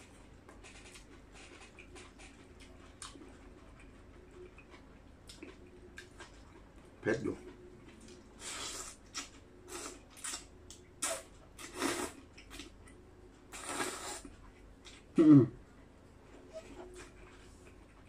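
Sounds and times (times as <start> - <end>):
person slurping noodles: 11.0 - 12.2, 13.5 - 14.3
voiced throat grunt: 15.2 - 15.6.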